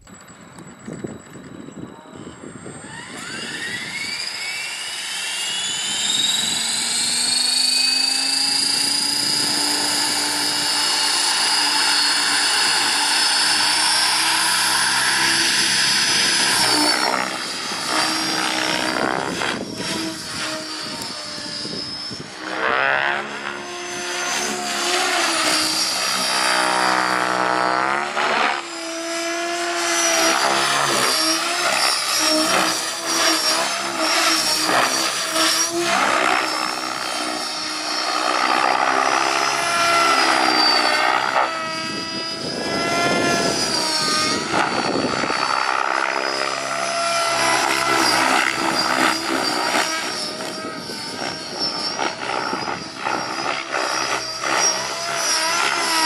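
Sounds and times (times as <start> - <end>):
rc helicopter rotor whine: 0.0 - 56.0.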